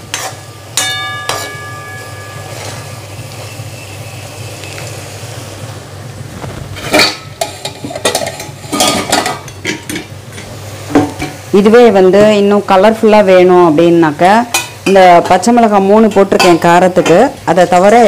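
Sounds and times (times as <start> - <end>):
spatula scraping and clinking pan: 0.0 - 3.0, 6.8 - 10.5
metal spatula clanging on pan: 0.1 - 3.0, 14.5 - 15.5, 16.3 - 17.3.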